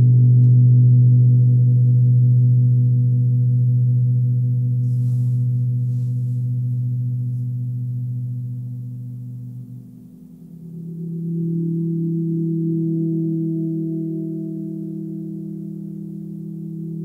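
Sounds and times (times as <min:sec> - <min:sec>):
faint rustle: 0:04.8 - 0:07.5.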